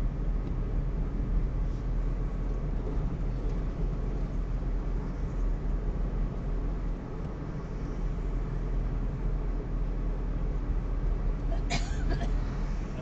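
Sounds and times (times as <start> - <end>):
car cabin engine and tyre rumble: 0.0 - 13.0.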